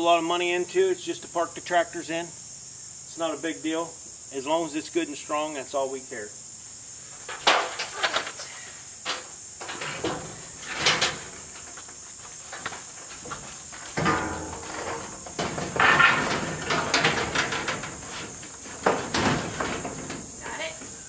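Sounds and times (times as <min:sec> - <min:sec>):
insects chirring: 0:00.0 - 0:21.0
metal sheet rattling and knocking: 0:09.1 - 0:20.7.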